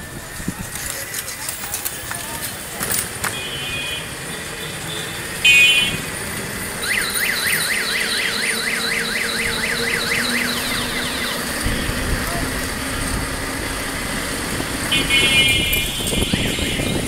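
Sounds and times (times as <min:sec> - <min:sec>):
street traffic: 0:00.0 - 0:17.0
warbling electronic alarm: 0:06.8 - 0:11.6
car horn tones: 0:14.9 - 0:17.0.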